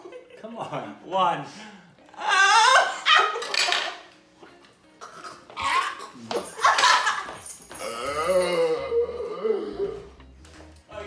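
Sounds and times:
people yelping: 2.1 - 3.4.

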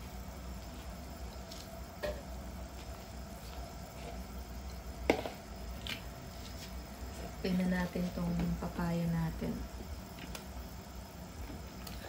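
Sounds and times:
soup bubbling at a boil: 0.0 - 7.1.

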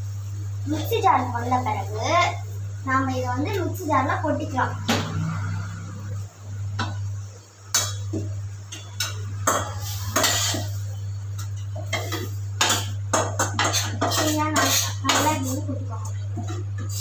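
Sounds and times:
spoon scraping metal pan: 13.4 - 15.6.

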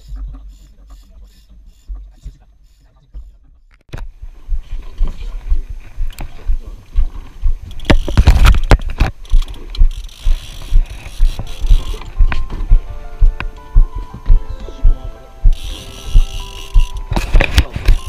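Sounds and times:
gear knocking and rattling: 7.6 - 12.5, 15.6 - 18.0
background music: 11.3 - 18.0.

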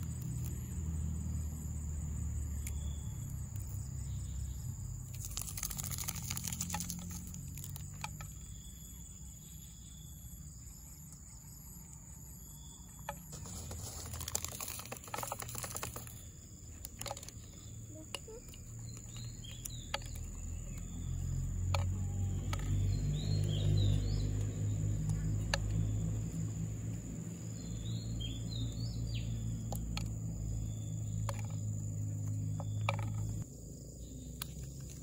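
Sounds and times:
seeds clicking onto plastic plate: 5.1 - 8.7, 13.0 - 24.0.

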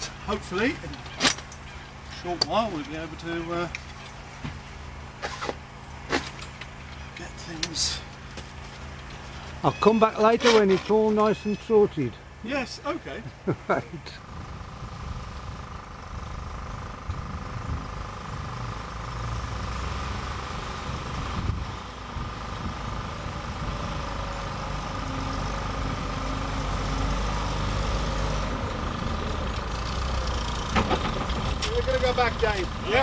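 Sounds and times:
lorry engine running: 10.8 - 33.0.

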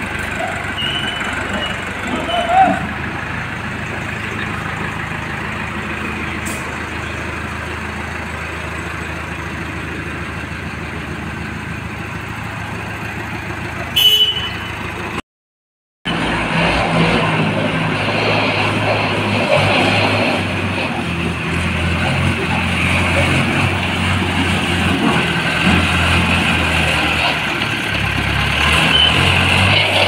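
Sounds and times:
diesel engine running: 0.0 - 15.2, 16.1 - 30.0
short horn beep: 0.8 - 1.8, 14.0 - 14.8.

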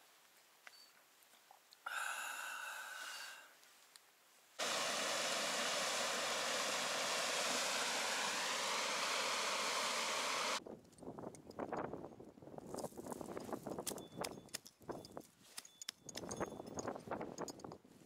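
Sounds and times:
faint exhalation: 1.8 - 3.6
river water rushing over weir: 4.6 - 10.6.

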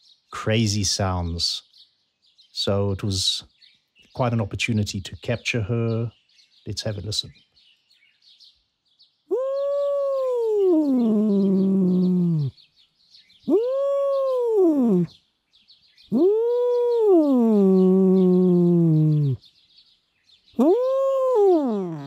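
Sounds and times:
cat grumbling calls: 9.3 - 12.5, 13.5 - 15.1, 16.1 - 19.4, 20.6 - 22.0.

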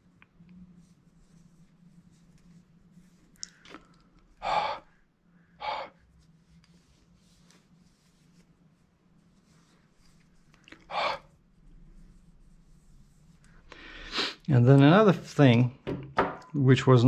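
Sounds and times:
faint steady hum: 0.0 - 17.0
person puffing breath: 13.8 - 14.4.

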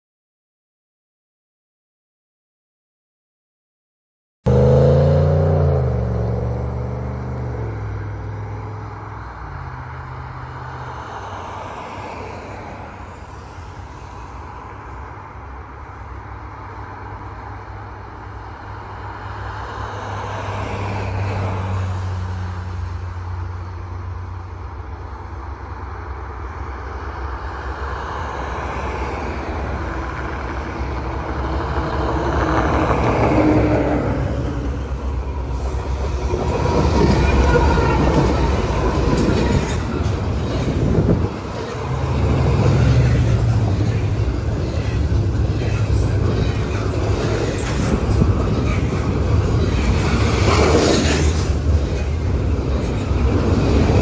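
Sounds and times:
diesel locomotives rumbling: 4.5 - 54.0
road vehicles passing: 4.5 - 54.0.

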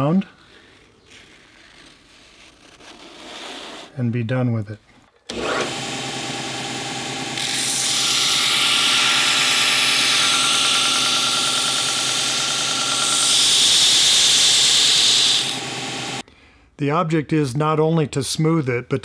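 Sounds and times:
sander motor humming: 5.3 - 16.2
wood hissing against sanding belt: 7.4 - 16.2.

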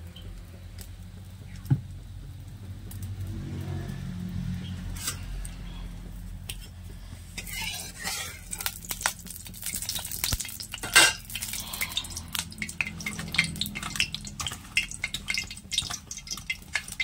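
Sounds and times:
hot oil crackling and popping: 0.0 - 17.0.

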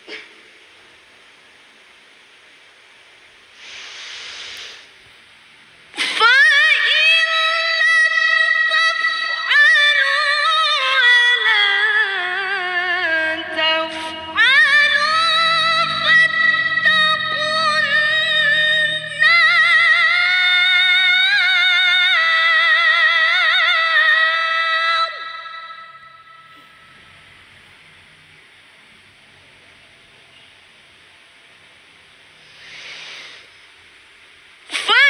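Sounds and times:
woman reciting melodically: 5.9 - 26.9, 34.7 - 35.0.

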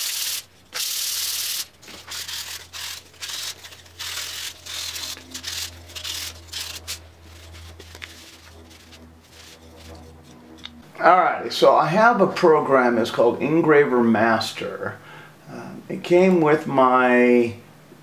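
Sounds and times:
wood rubbing on sandpaper: 0.0 - 10.6.

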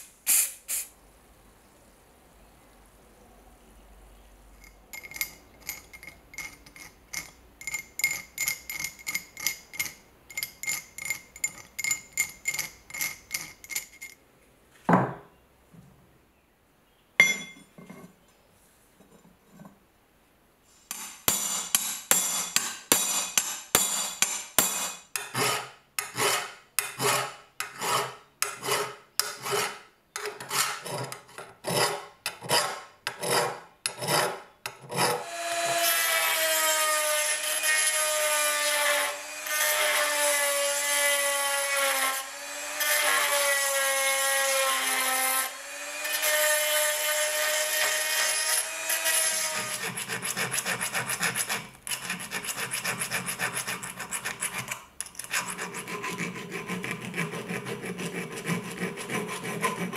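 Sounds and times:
small file rasping: 5.0 - 14.2, 20.9 - 59.9
hand file on steel: 20.9 - 37.0, 42.8 - 59.9
rotary tool grinding whine: 35.0 - 50.7.

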